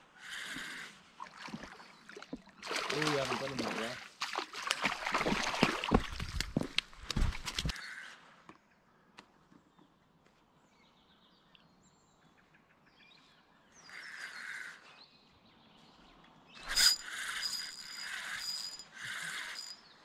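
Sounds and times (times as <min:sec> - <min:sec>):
fishing reel whirring: 0:16.6 - 0:19.8.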